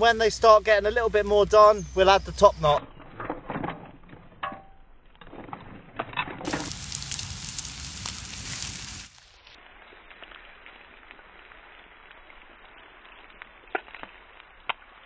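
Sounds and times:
shellfish sizzling in a frying pan: 6.4s - 15.0s.

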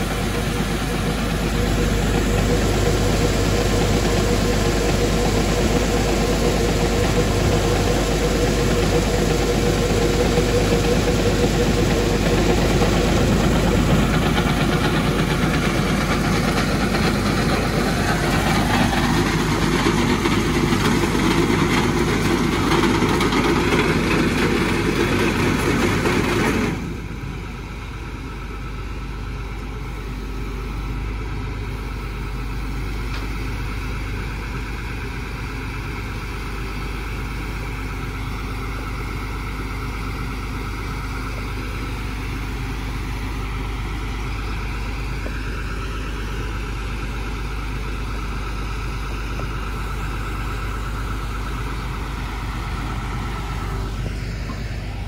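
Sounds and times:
truck engine idling: 0.0s - 55.0s.

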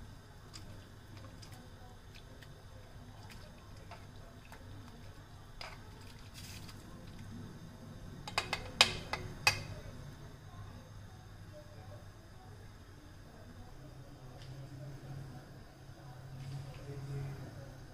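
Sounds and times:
tongs stirring noodles in water: 0.3s - 7.2s.

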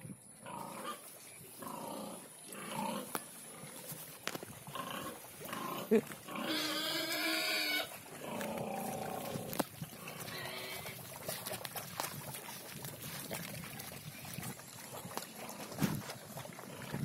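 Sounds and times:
pigs slurping food: 0.4s - 17.0s
pig squealing: 4.8s - 8.4s.

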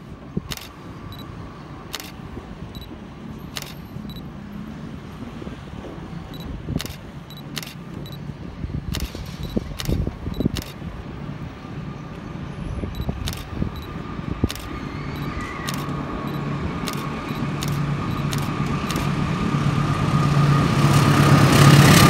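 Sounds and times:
diesel locomotive rumble: 0.0s - 22.0s
town background noise: 0.0s - 22.0s
sharp clicks: 0.5s - 1.3s, 1.9s - 2.2s, 3.6s - 4.2s, 6.4s - 8.2s, 8.9s - 10.8s, 13.0s - 19.2s.

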